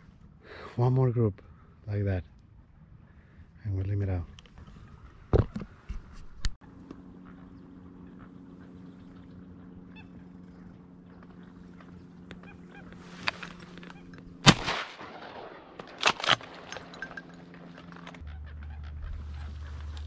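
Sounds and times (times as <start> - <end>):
shotgun shots: 14.4 - 17.6.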